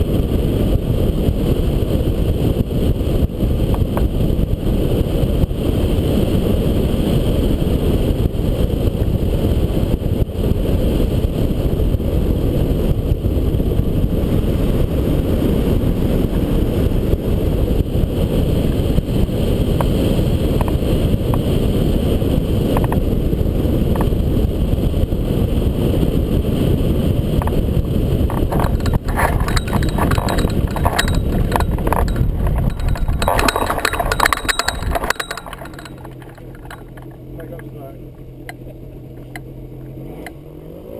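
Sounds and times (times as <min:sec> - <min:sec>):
wind buffeting microphone: 0:00.0 - 0:40.1
clicks and knocks: 0:28.3 - 0:38.6.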